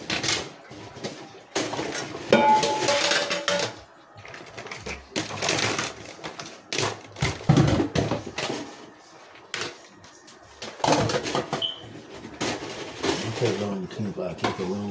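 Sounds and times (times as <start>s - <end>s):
pans and lid clattering: 1.6s - 3.8s
cookware ringing: 2.3s - 3.8s.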